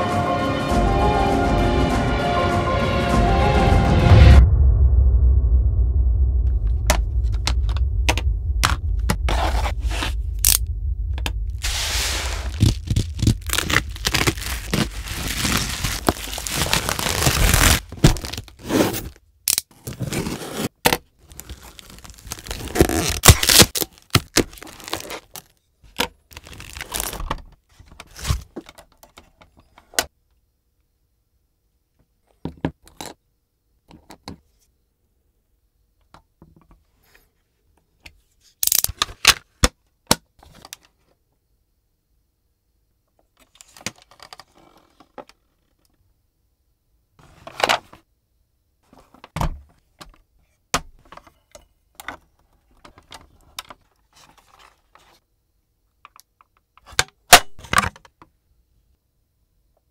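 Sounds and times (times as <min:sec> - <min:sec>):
low intro music: 0:00.0 - 0:17.8
packaging scraping and tearing: 0:09.3 - 0:10.6, 0:11.6 - 0:25.6, 0:26.3 - 0:27.3, 0:28.1 - 0:28.5.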